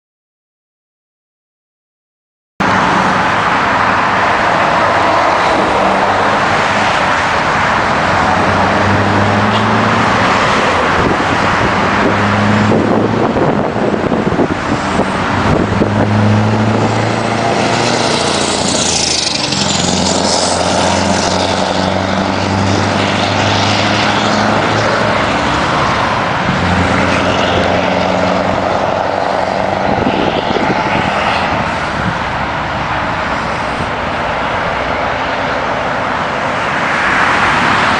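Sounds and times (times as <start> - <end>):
truck diesel engine accelerating: 2.6 - 37.9.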